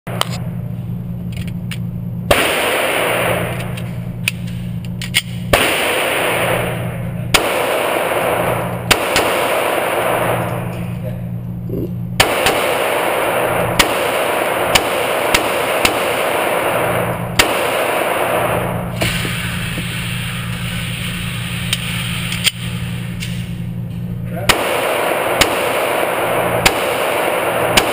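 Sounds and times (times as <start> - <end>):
steady low hum: 0.1 - 27.9
pistol shots: 2.3 - 4.5, 5.1 - 10.8, 12.2 - 19.6, 24.5 - 27.9.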